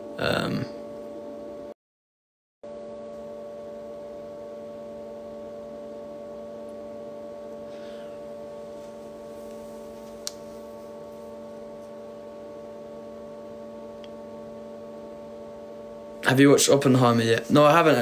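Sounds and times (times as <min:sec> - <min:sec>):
electrical hum: 0:00.0 - 0:01.8, 0:02.6 - 0:18.0
sharp click: 0:10.2 - 0:10.4.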